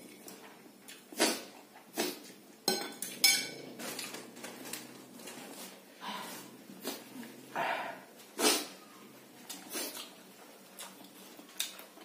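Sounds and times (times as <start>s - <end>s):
cutlery clinking on plate: 2.7s - 4.1s.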